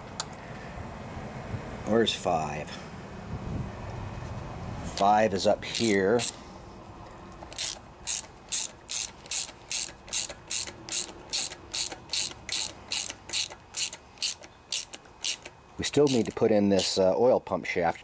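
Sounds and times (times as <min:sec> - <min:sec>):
ratchet wrench clicking: 0:05.0 - 0:06.4, 0:07.4 - 0:17.0.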